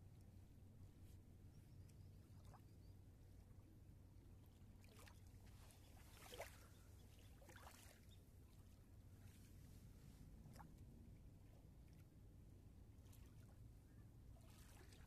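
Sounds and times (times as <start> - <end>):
low steady hum: 0.0 - 15.0
water lapping against riverbank: 0.1 - 15.0
soft splashes: 2.2 - 2.8, 4.7 - 9.6, 10.4 - 10.9, 13.0 - 15.0.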